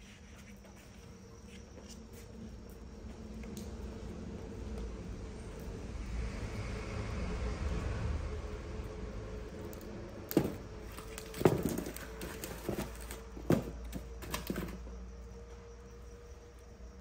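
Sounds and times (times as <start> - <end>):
burning logs knocking: 9.7 - 14.8.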